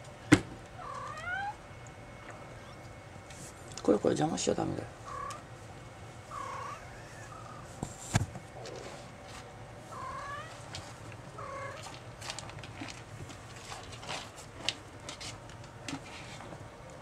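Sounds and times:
kitten mewing: 0.8 - 1.6, 5.1 - 5.4, 6.3 - 7.7, 9.9 - 10.6, 11.4 - 11.9
kitten digging in cat litter: 7.7 - 17.0.

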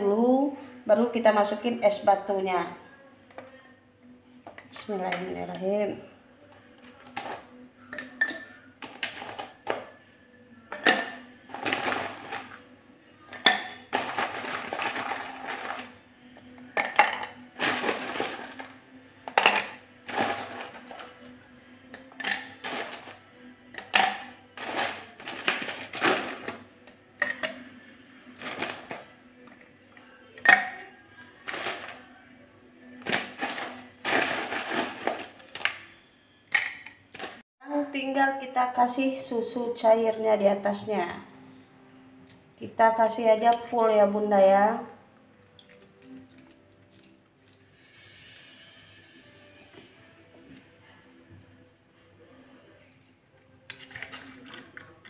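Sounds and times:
ice cubes rattling in bowl: 11.5 - 12.6, 13.9 - 16.0, 17.6 - 18.7, 19.4 - 21.1, 22.2 - 23.2, 24.6 - 26.6, 28.4 - 29.1, 31.4 - 32.0, 33.0 - 35.7
ice clinking against glass: 13.3 - 15.9, 16.8 - 18.6, 19.3 - 21.0, 21.9 - 23.1, 30.4 - 30.9.

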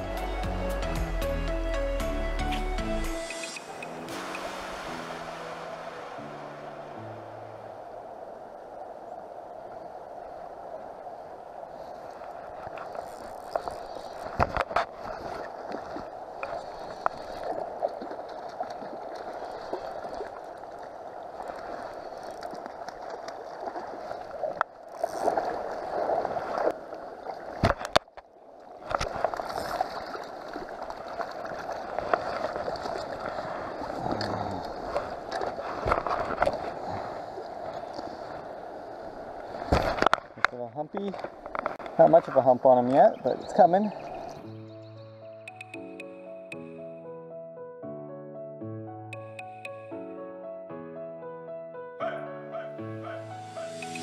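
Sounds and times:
river flowing over stones: 3.1 - 27.8, 28.4 - 40.4.

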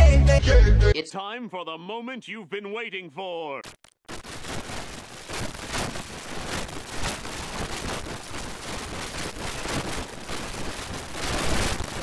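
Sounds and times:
harsh rushing noise with crackles: 3.6 - 12.0.

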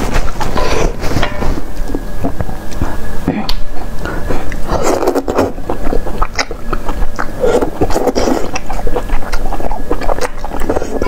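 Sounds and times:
wet chewing and slurping: 3.8 - 11.0
noodle slurp: 4.6 - 11.0.

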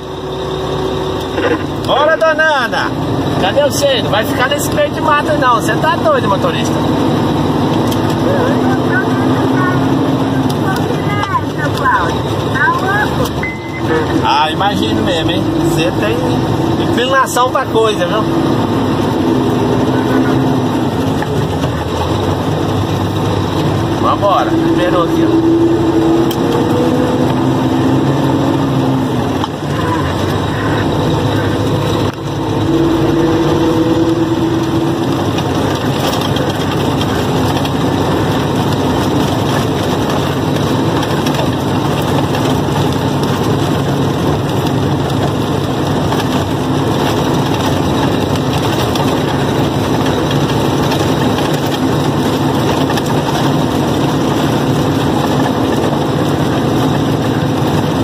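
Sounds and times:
truck diesel engine drone: 0.0 - 58.0
steady higher tone: 13.4 - 14.3.

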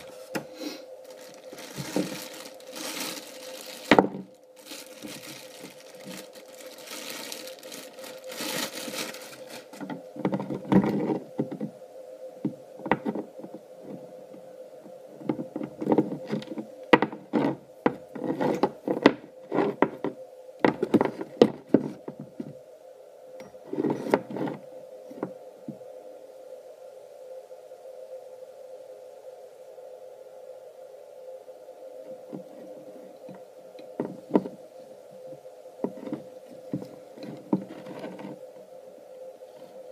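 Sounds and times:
knocks and rustles of handling: 0.0 - 11.8, 15.2 - 22.6, 34.0 - 34.6, 35.8 - 38.4
steady low hum: 0.0 - 39.9
plastic bag crinkling: 1.0 - 10.0.

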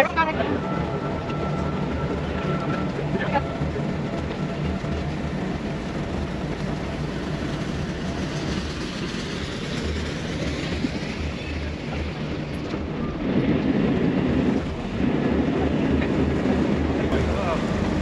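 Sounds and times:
boat diesel engine running: 0.0 - 12.8
water and wind rush: 3.0 - 18.0.

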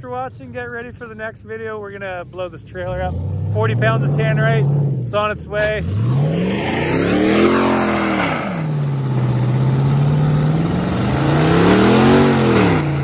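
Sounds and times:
truck engine revving: 2.7 - 13.0.

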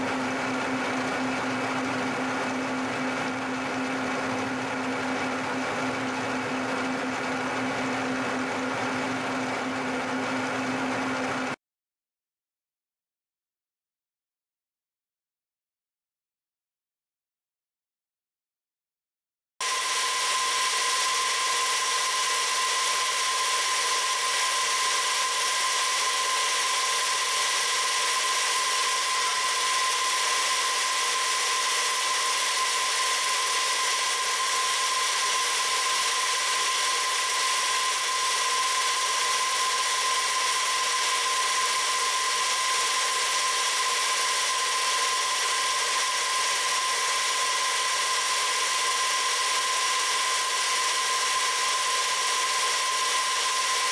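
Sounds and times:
milling machine cutting metal: 19.6 - 53.9.

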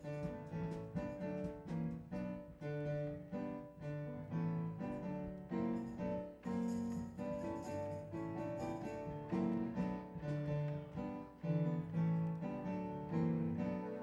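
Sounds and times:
instrumental melody: 4.8 - 14.0.

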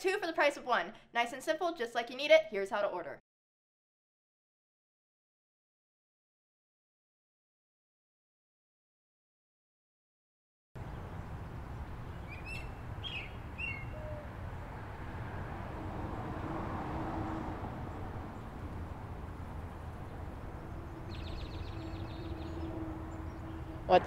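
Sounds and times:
bird chirps: 11.8 - 14.4, 20.5 - 24.0.

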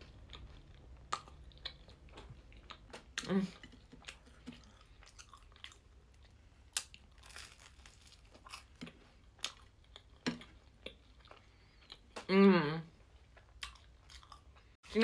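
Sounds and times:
toast crunching: 3.6 - 11.0.

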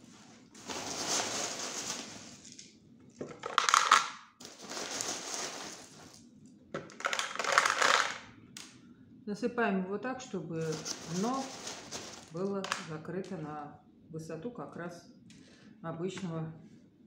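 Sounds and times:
clay pebbles shifting: 0.0 - 8.2, 10.6 - 13.4
plastic packet crinkling: 0.6 - 6.2, 6.8 - 8.2, 10.6 - 12.9.

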